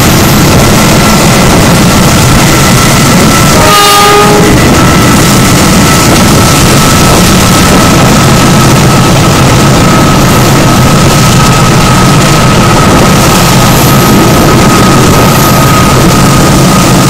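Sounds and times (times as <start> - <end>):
train rumble and rush: 0.0 - 17.0
train horn: 3.5 - 5.0.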